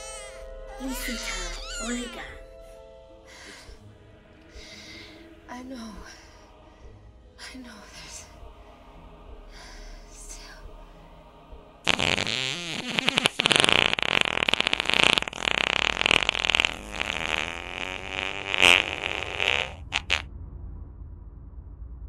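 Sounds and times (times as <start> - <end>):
comedic fart sound: 11.9 - 20.2.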